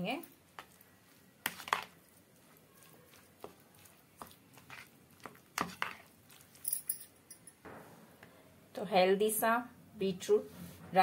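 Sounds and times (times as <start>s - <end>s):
wet squelching of yogurt: 0.0s - 6.6s
spoon scraping a bowl: 1.5s - 6.6s.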